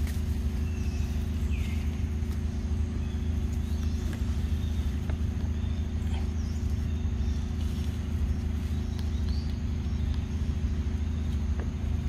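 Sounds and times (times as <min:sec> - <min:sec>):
low rumble and hum: 0:00.0 - 0:12.0
faint bird chirps: 0:00.5 - 0:12.0.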